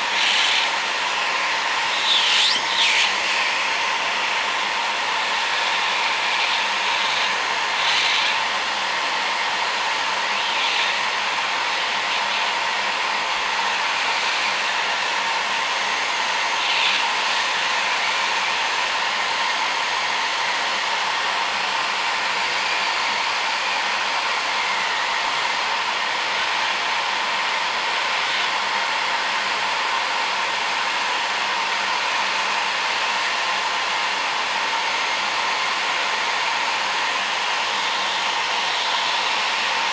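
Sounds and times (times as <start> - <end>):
heat gun blowing with hiss: 0.0 - 39.9.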